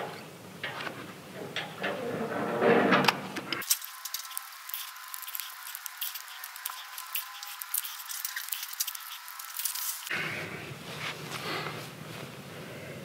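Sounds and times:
hand tool clicking and scraping: 3.6 - 10.1.

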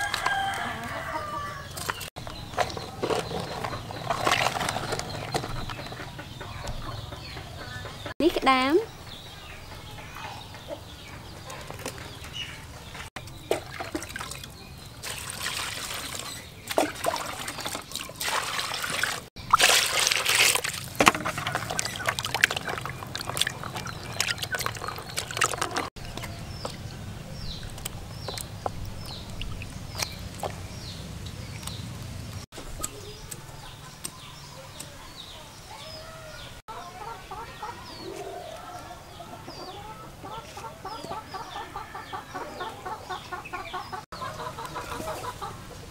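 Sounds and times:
chickens clucking and cheeping: 0.0 - 15.0, 21.0 - 45.9
water splashing in a basin: 13.3 - 25.9, 27.8 - 30.6.

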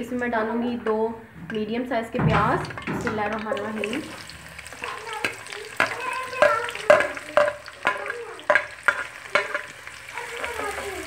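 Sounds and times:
onions sizzling in oil: 2.3 - 11.0.

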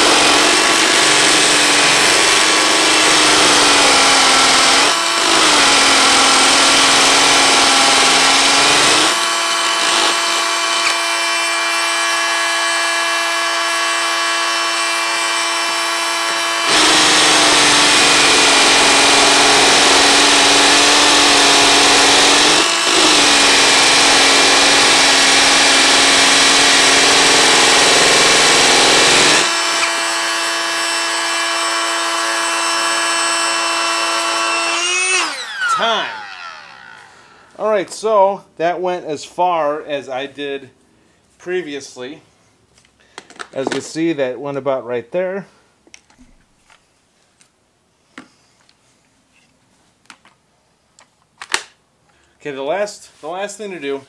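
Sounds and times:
hammer drill drilling into concrete: 0.0 - 37.5.

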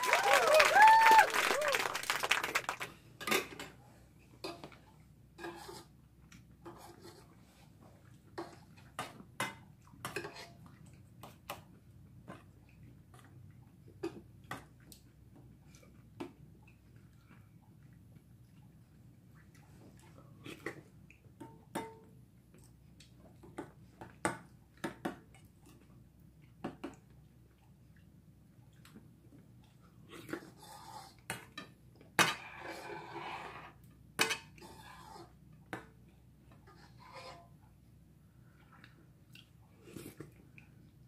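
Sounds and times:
eating and chewing noises: 5.8 - 21.4, 22.0 - 32.7, 38.4 - 41.0.

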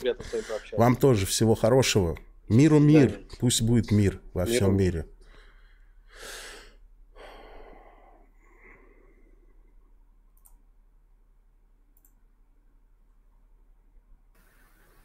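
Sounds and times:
small clicks: 10.3 - 10.6, 11.9 - 12.2.

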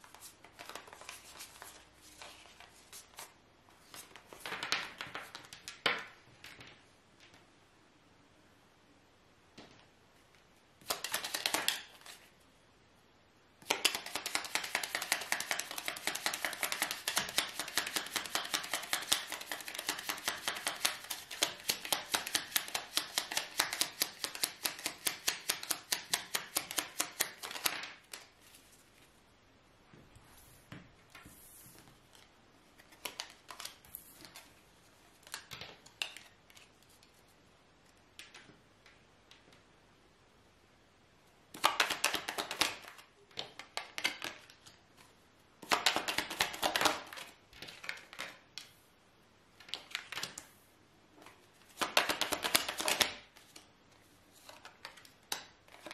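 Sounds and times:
cards shuffling: 0.0 - 6.0, 10.8 - 12.3, 13.7 - 29.1, 31.1 - 34.6, 45.6 - 48.7, 51.6 - 53.7, 54.3 - 55.9.

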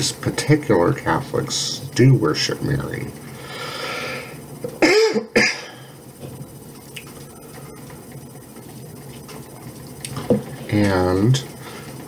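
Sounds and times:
man coughing: 4.8 - 5.9.

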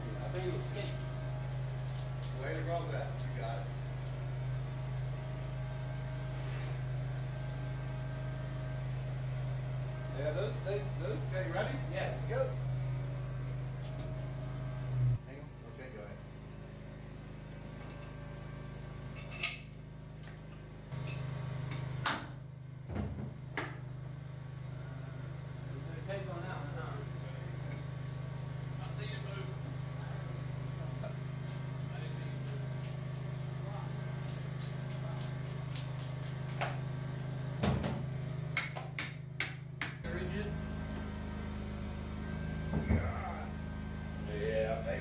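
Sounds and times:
engine running: 0.0 - 45.0
engine idling: 40.0 - 45.0.

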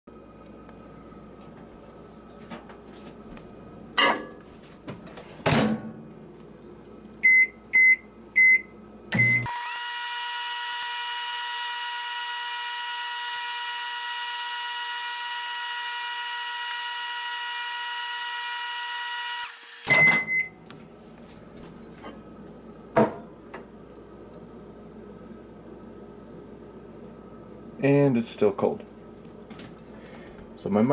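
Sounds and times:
microwave oven humming: 0.1 - 30.9
keypad beeps: 19.9 - 20.5.

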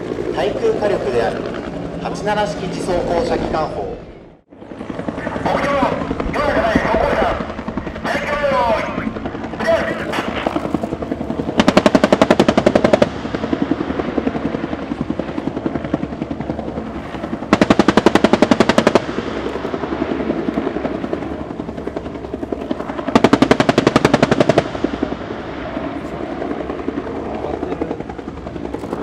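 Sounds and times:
helicopter rotor and engine: 0.0 - 29.0
rotary cannon firing bursts: 9.7 - 15.9, 17.0 - 21.0, 22.9 - 25.3.

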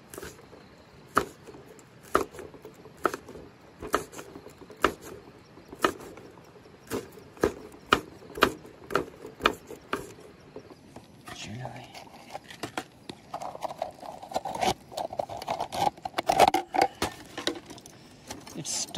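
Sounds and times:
blade chopping on wood: 1.1 - 6.2, 6.8 - 10.2.

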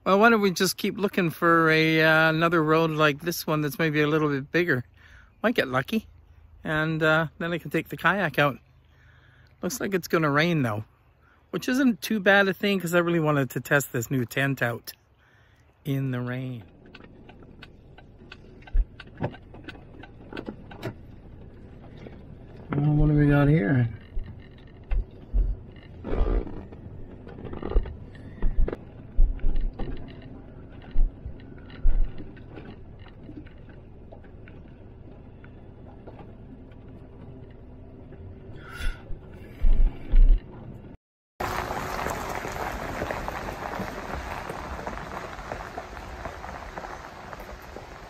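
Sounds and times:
quiet rumble: 12.2 - 48.0
vehicle jolting on gravel: 16.0 - 37.4, 41.4 - 48.0
rain hissing: 41.4 - 48.0.

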